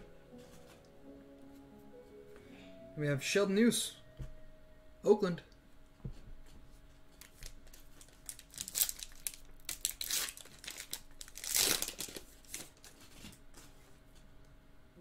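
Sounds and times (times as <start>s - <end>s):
foil wrapper crinkling and tearing: 7.1s - 13.4s.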